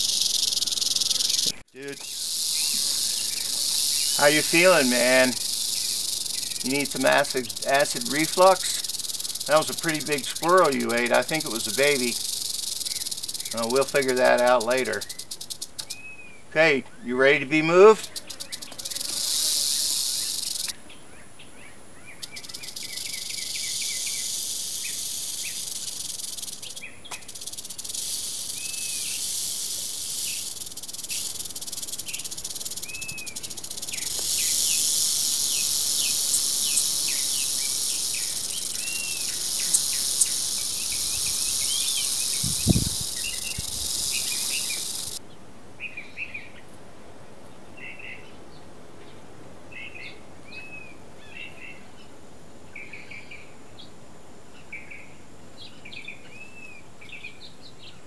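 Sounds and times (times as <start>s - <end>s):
rattlesnake rattling: 0.0s - 16.0s, 17.8s - 20.7s, 22.2s - 45.2s
birds chirping: 0.0s - 45.2s.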